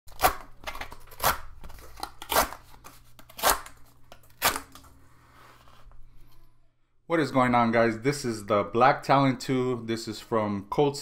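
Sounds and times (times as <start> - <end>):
cardboard ripping: 0.1 - 2.7, 3.3 - 4.8.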